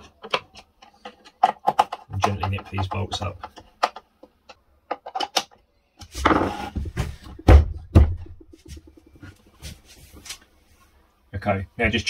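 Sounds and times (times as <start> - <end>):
wood scraping on workbench: 6.1 - 7.1
sharp wooden knocks: 6.8 - 9.2.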